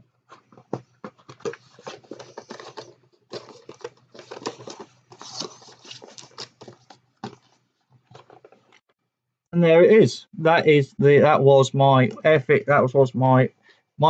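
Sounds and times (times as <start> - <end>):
cardboard box crinkling and rustling: 0.4 - 8.8.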